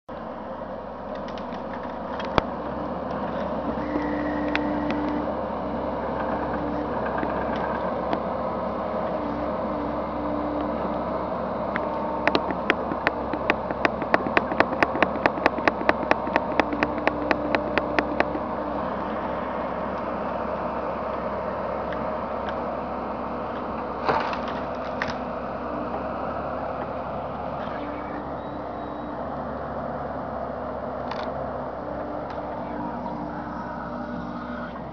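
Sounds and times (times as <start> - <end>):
excavator engine and hydraulics: 0.1 - 34.9
rapid sharp clicks: 11.8 - 18.5.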